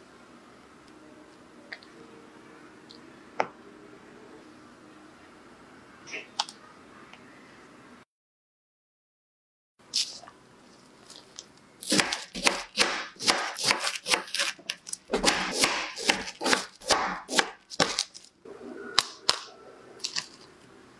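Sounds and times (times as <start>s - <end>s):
knife slicing frozen ice cream: 11.8s - 18.3s.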